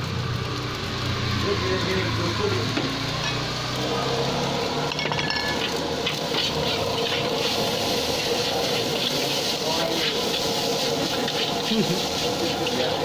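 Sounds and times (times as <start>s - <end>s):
rice sizzling in a wok: 0.0s - 13.0s
metal spatula scraping a pan: 5.0s - 13.0s.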